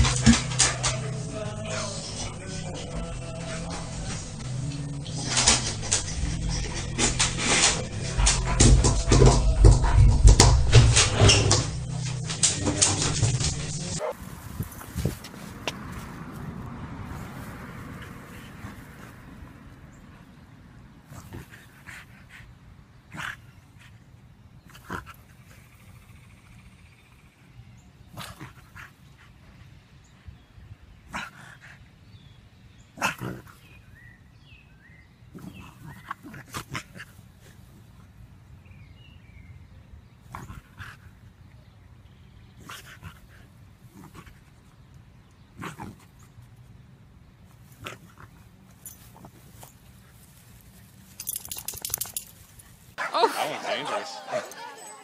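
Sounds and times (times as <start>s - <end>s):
scratching and knocking on glass door: 5.1s - 14.0s.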